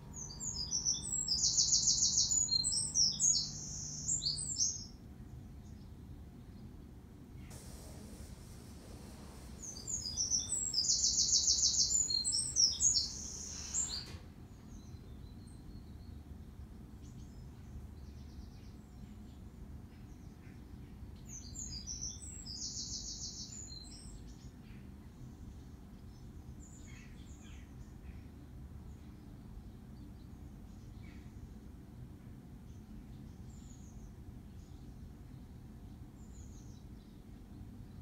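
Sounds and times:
songbird singing with trill: 0:00.0 - 0:05.0, 0:09.6 - 0:14.0, 0:17.0 - 0:25.4.

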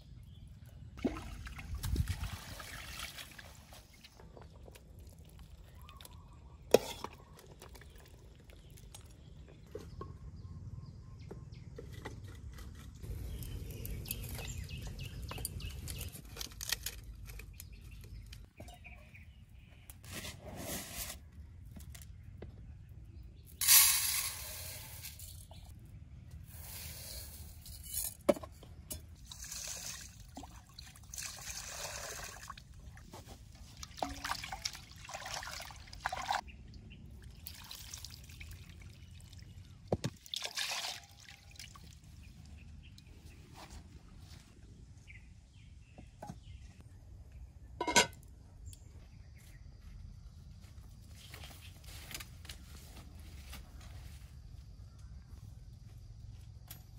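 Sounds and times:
water pouring and trickling: 0:01.0 - 0:09.5, 0:29.0 - 0:43.1.

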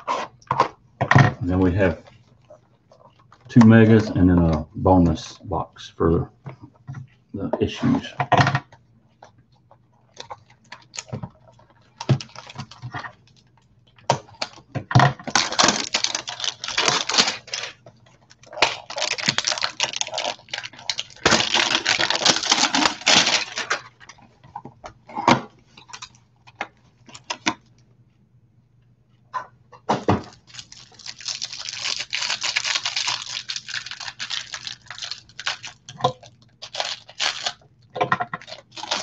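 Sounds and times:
packaging crinkling and rustling: 0:10.0 - 0:24.5, 0:29.9 - 0:39.0.

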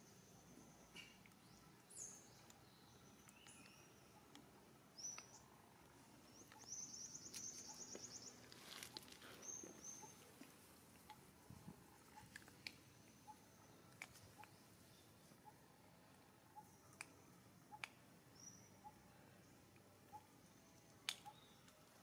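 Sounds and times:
quiet outdoor ambience: 0:00.0 - 0:22.0
soft clicks: 0:03.2 - 0:06.7, 0:16.9 - 0:18.0.

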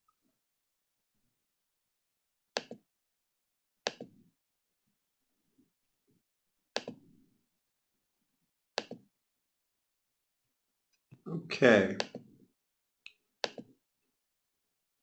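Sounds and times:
computer mouse clicking: 0:03.9 - 0:04.1, 0:06.8 - 0:07.0, 0:08.8 - 0:09.0, 0:13.1 - 0:13.7.

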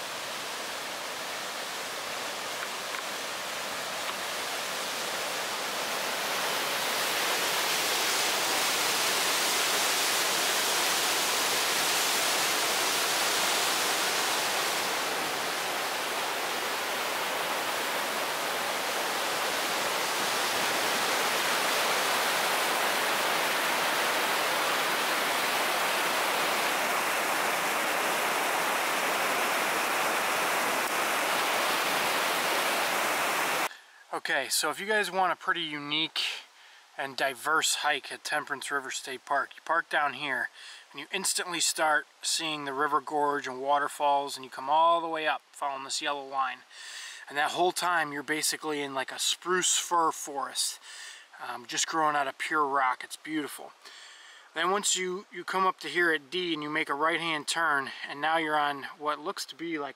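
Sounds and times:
whitewater rushing: 0:00.0 - 0:33.7.

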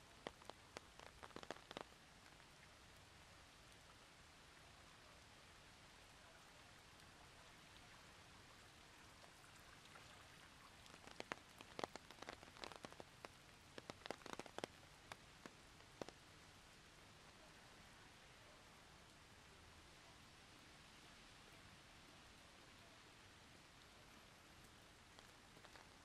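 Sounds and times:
rain hiss: 0:00.0 - 0:26.0
water drips tapping: 0:10.8 - 0:16.2.

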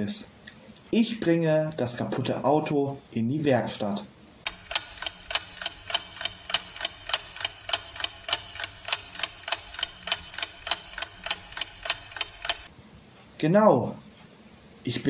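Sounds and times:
clock ticking: 0:04.5 - 0:12.7.

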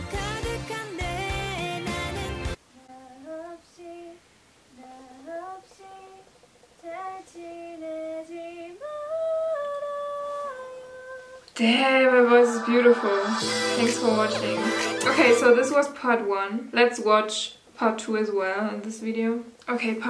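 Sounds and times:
woman singing unaccompanied: 0:02.7 - 0:16.2.

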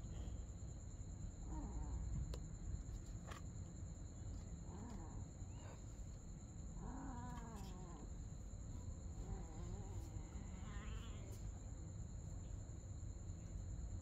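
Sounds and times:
cats meowing: 0:06.8 - 0:08.0, 0:09.2 - 0:11.5.

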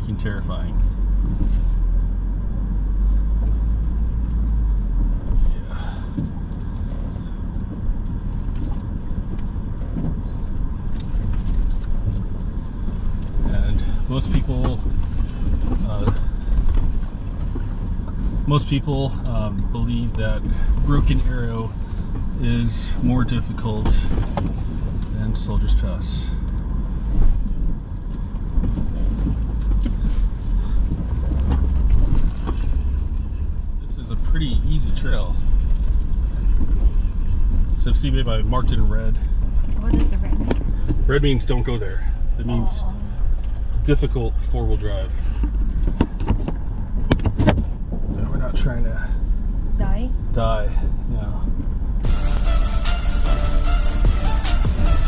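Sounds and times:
engine and tyres rumbling: 0:00.0 - 0:55.0.

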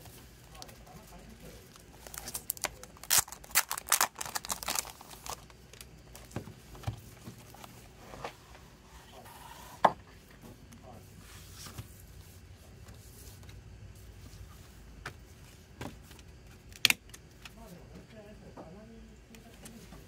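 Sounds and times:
plastic wrap crinkling: 0:01.6 - 0:06.3.

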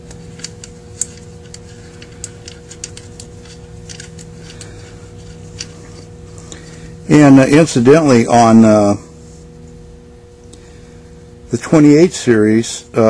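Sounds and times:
small metal parts clicking: 0:00.0 - 0:05.8
faint steady hum: 0:00.0 - 0:13.0.

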